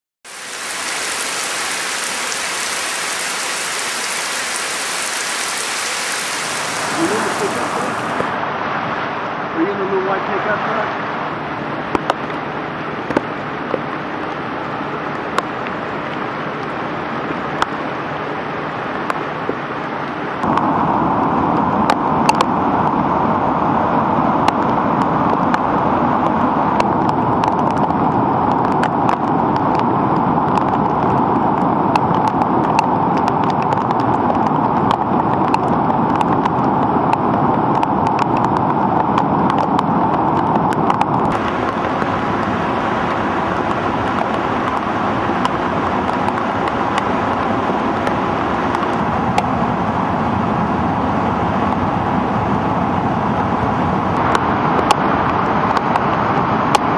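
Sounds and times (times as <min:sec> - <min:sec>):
river rushing over rapids: 0:00.3 - 0:08.4, 0:40.9 - 0:52.2.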